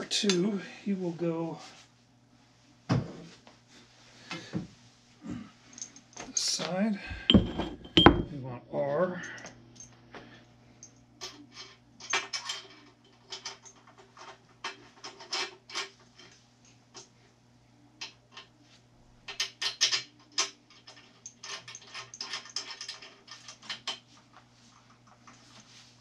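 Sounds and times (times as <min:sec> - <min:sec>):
metal brackets clinking and clanking: 0:07.2 - 0:08.4, 0:19.3 - 0:24.0.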